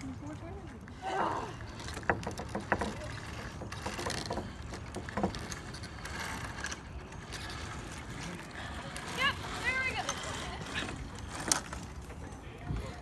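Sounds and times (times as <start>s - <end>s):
wooden rungs knocking and clicking: 1.7s - 6.4s.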